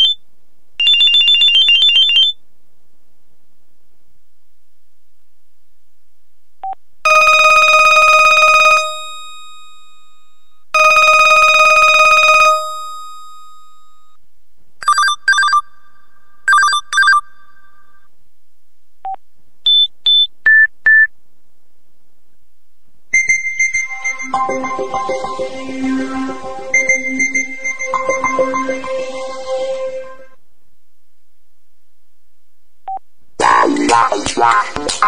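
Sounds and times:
buzzy electronic phone ring: 7.1 - 14.2, 23.2 - 30.4
musical ringtone: 10.8 - 13.6, 23.2 - 30.4.

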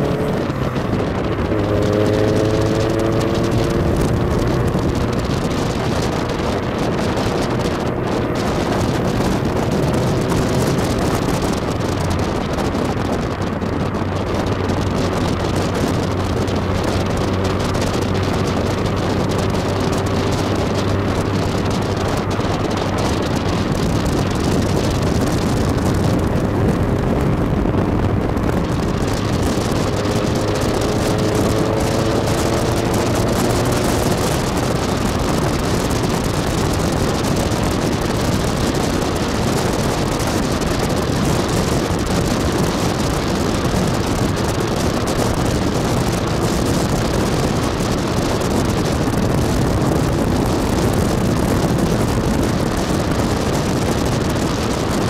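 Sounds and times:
sports car engine running: 0.0 - 55.0
wind and road noise: 0.0 - 55.0.

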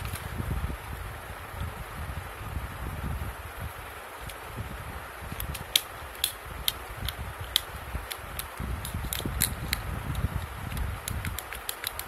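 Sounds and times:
fidget cube clicking: 5.4 - 12.0.

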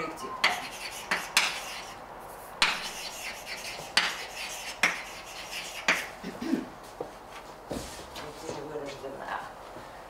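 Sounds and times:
chalk tapping on blackboard: 0.4 - 1.9, 2.6 - 6.2
chalk scratching: 0.4 - 6.2.

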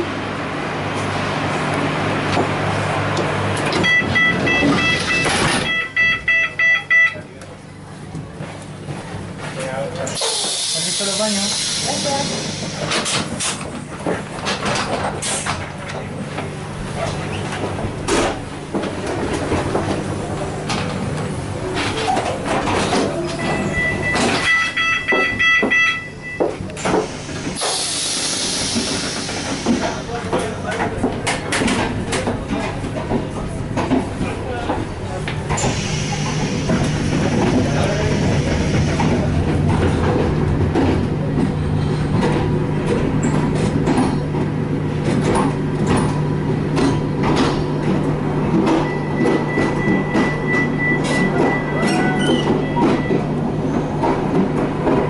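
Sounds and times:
train rumbling on rails: 0.0 - 55.0
quick beeps: 3.8 - 7.2
compressed air hissing: 10.2 - 13.0, 27.0 - 30.2, 35.6 - 37.4.

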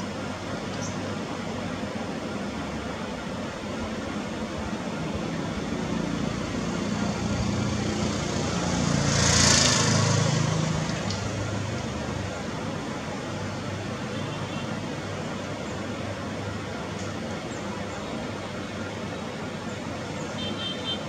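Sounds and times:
steady background hiss: 0.0 - 8.9.

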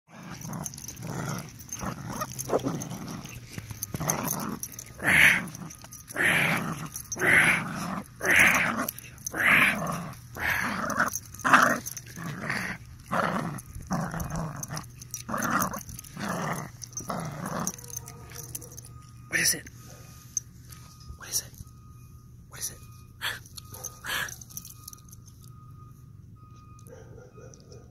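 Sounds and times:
dog play-growling: 0.1 - 18.7.

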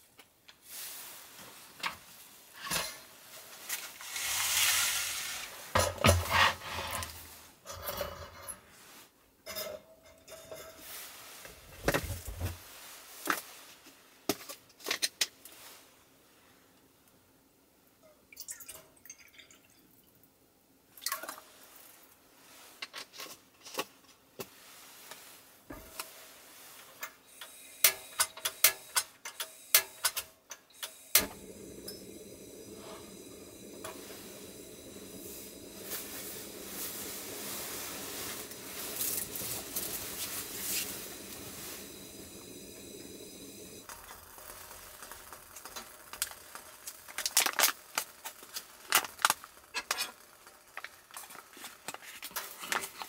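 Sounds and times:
gas flame hissing: 3.7 - 7.9, 25.7 - 53.0
gas stove igniter clicks: 27.8 - 32.7.

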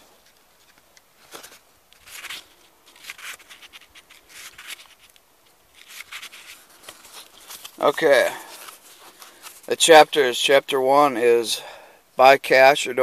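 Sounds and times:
book pages flipping: 0.2 - 9.7.

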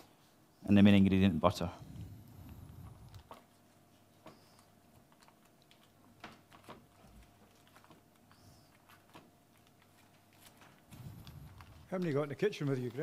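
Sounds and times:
paper wrapper rustling: 2.9 - 13.0.

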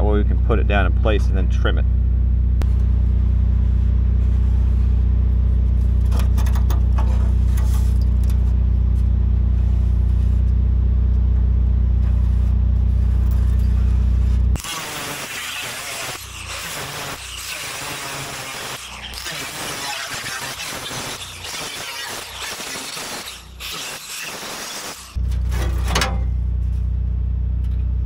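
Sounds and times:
engine humming: 0.0 - 23.8, 25.0 - 28.0
harsh hissing noise: 14.6 - 25.2.

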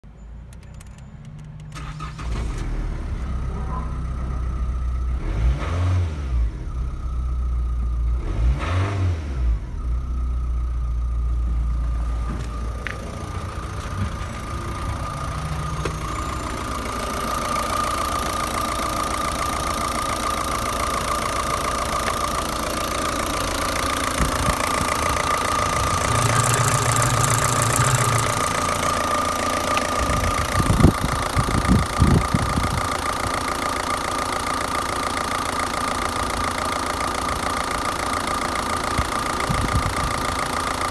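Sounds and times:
diesel engine starting and idling: 0.1 - 40.9
engine revving: 1.8 - 6.9, 8.0 - 10.1, 11.4 - 34.2
steady whine: 11.2 - 32.0.

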